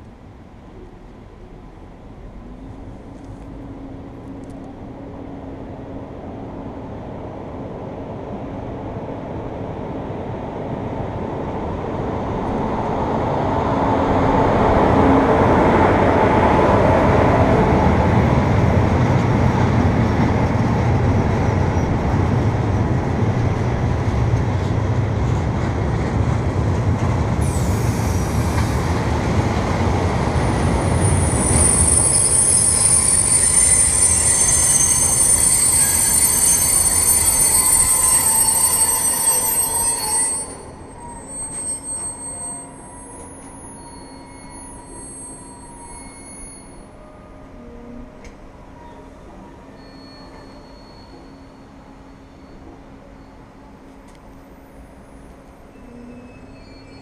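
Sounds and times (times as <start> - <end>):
train wheels rumbling on rails: 0.0 - 46.8
high-pitched wheel squeal: 30.8 - 48.1, 48.8 - 53.5, 55.7 - 57.0.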